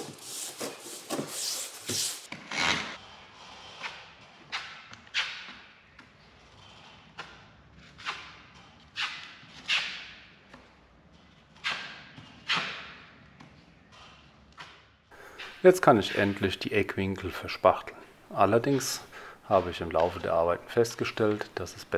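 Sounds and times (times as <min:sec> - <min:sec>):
putty knife scraping plasterboard: 0:00.0 - 0:10.4, 0:11.4 - 0:13.1.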